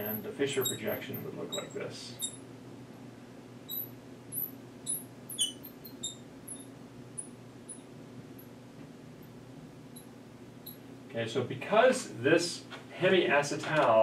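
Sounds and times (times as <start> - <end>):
marker squeaking on glass: 0.0 - 2.4, 3.7 - 7.9, 10.0 - 10.9
low room hum: 0.0 - 14.0.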